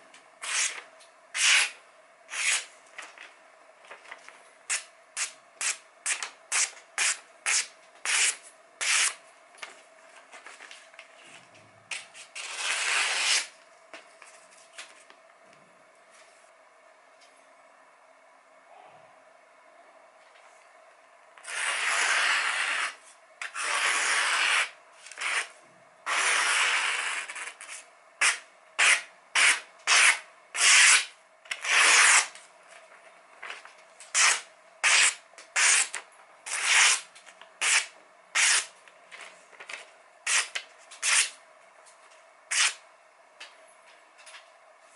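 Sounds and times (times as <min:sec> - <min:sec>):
knife slicing paper: 0:00.4 - 0:00.8, 0:01.4 - 0:02.7, 0:04.7 - 0:09.2, 0:12.0 - 0:13.5, 0:21.4 - 0:25.5, 0:26.1 - 0:32.4, 0:34.1 - 0:38.7, 0:40.3 - 0:41.4, 0:42.5 - 0:42.8.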